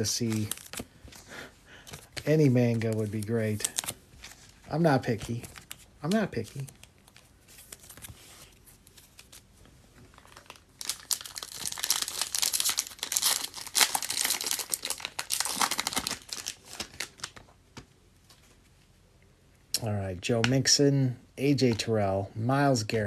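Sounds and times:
foil wrapper tearing and crinkling: 0:00.0 - 0:00.8, 0:10.1 - 0:17.4.

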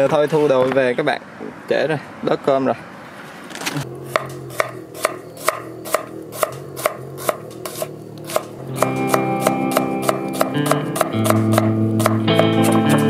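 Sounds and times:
knife chopping on wooden board: 0:04.1 - 0:13.0
background music: 0:08.6 - 0:13.0.

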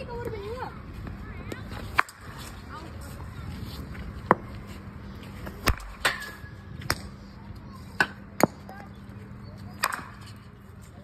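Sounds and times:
ball bouncing on hard ground: 0:04.2 - 0:04.6, 0:05.4 - 0:07.1, 0:08.0 - 0:08.9.

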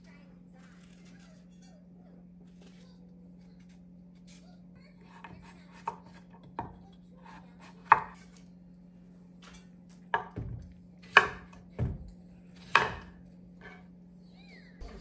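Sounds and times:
knife chopping on wooden board: 0:05.1 - 0:08.2, 0:10.1 - 0:13.8.

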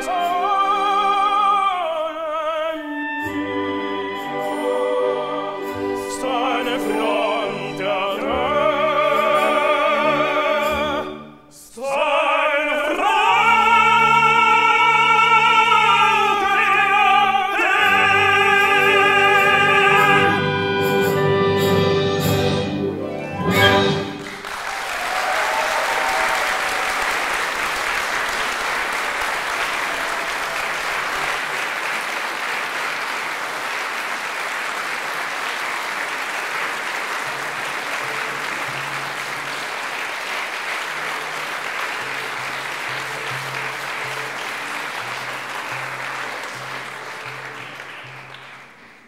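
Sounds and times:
audience applauding: 0:23.9 - 0:49.0.

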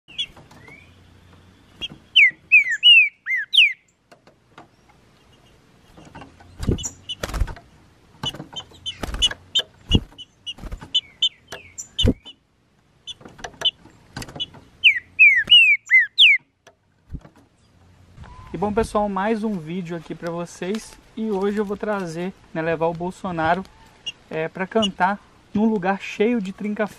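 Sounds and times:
bird chirping notes: 0:00.0 - 0:20.2, 0:23.2 - 0:26.9
bird singing descending whistles: 0:00.1 - 0:01.1, 0:01.8 - 0:03.9, 0:14.8 - 0:16.4.

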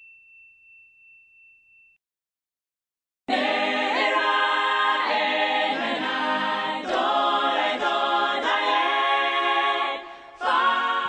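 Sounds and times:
choir singing unaccompanied: 0:03.3 - 0:11.0.

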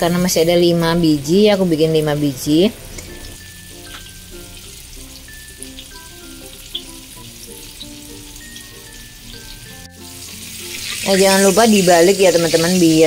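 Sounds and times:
background music: 0:00.0 - 0:13.0
chicken frying in oil: 0:03.0 - 0:13.0.

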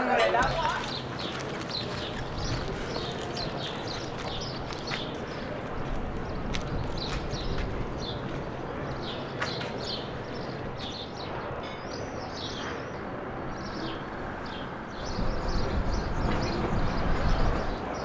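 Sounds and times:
small birds chirping: 0:00.3 - 0:18.0.

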